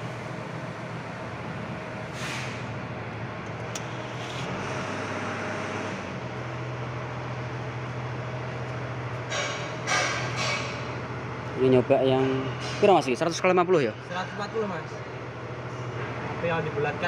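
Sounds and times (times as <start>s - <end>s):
engine humming: 0.0s - 17.0s
brief hiss: 2.1s - 2.7s.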